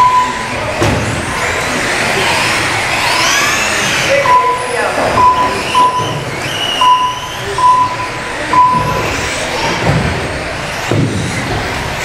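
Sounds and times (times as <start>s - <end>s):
short electronic beeps: 0.0s - 0.6s, 4.2s - 9.2s
electric toy car motors whining: 0.0s - 12.0s.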